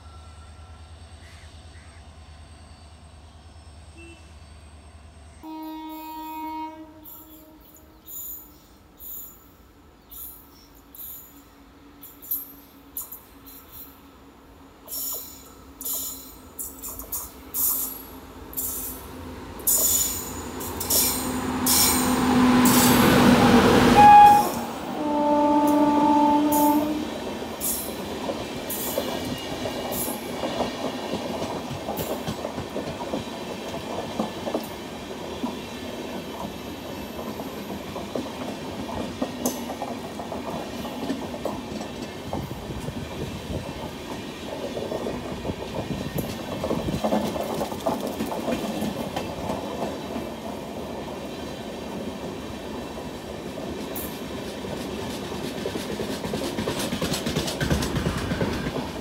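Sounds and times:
train coaches rumbling: 0.0 - 59.0
wheels clicking over rail joints: 27.5 - 50.6, 53.8 - 59.0.

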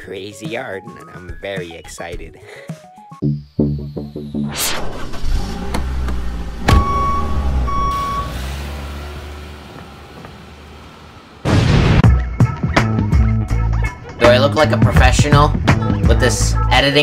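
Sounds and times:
engine running low rumble: 5.0 - 11.9
short electronic beeps: 6.7 - 8.4.

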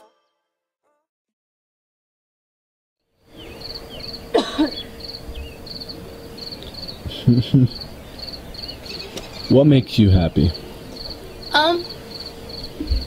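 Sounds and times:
crickets chirping: 3.2 - 13.0
low steady hum: 3.2 - 13.0
outdoor hiss: 3.2 - 13.0.

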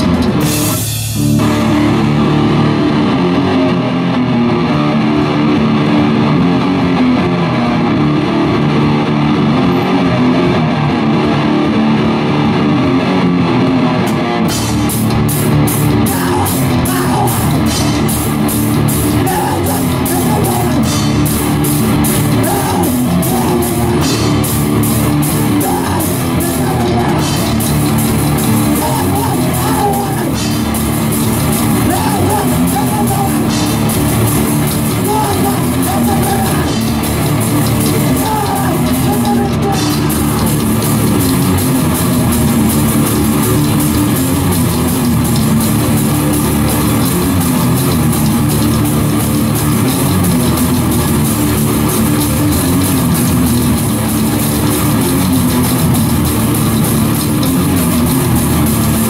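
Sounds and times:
drum kit with cymbal crashes: 0.0 - 2.3, 14.5 - 59.0
distorted electric guitar riff: 0.0 - 59.0.

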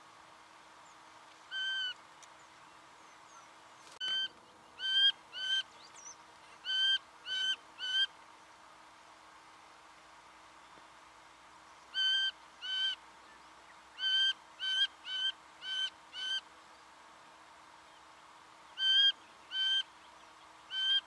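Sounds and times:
bird calling short notes: 1.5 - 2.0.

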